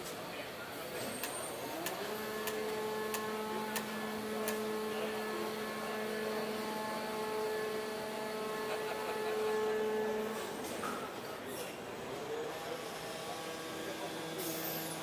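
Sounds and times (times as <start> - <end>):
machine hum: 1.6 - 10.8.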